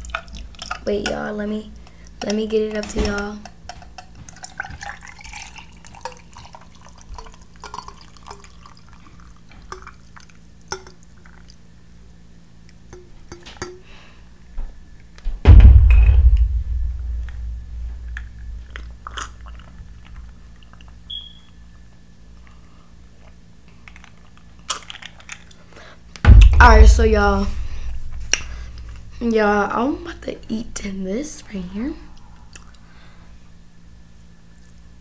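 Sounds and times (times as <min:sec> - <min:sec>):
drink pouring into glass: 0:04.0 - 0:11.6
loud low thump: 0:15.4 - 0:18.8, 0:26.2 - 0:29.2.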